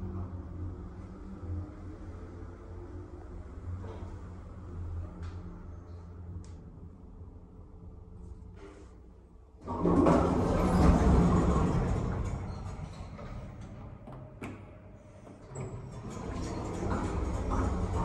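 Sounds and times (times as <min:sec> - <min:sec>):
lift door sliding open: 0:09.6 - 0:18.0.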